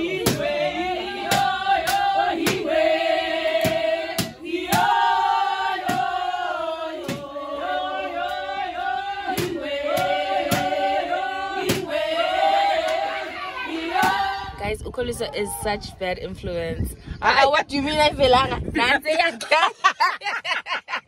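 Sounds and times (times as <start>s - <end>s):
group singing in chorus: 0.0s - 14.6s
hand claps: 1.3s - 2.6s, 9.4s - 10.8s.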